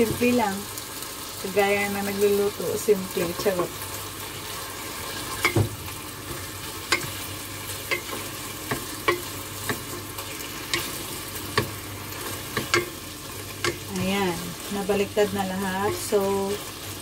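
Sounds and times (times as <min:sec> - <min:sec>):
chicken sizzling in oil: 0:00.0 - 0:17.0
spatula knocking and scraping pot: 0:06.3 - 0:14.4, 0:15.8 - 0:16.3.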